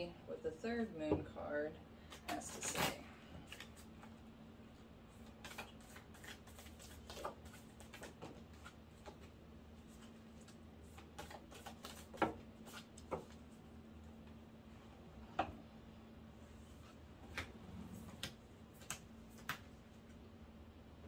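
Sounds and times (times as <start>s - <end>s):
cards being shuffled by hand: 2.1s - 4.2s, 5.1s - 13.6s, 16.6s - 20.2s.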